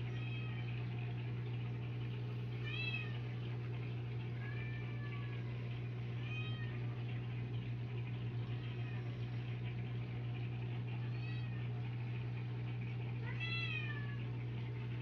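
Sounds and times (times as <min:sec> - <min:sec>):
steady low hum: 0:00.0 - 0:15.0
cat meowing: 0:13.2 - 0:14.2.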